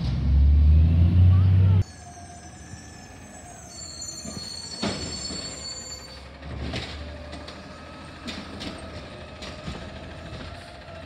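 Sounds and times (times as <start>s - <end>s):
truck engine rumble: 0.0s - 11.0s
brake squeal: 1.3s - 11.0s.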